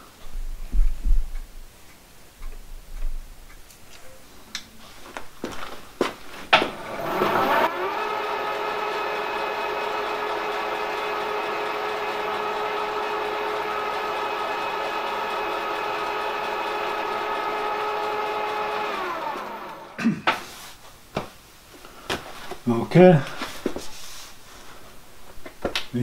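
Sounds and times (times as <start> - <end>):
milling machine spindle whining: 6.6 - 20.0.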